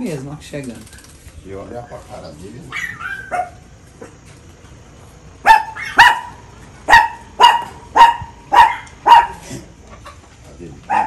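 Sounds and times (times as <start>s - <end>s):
dog barking: 2.7s - 4.2s, 5.4s - 9.4s.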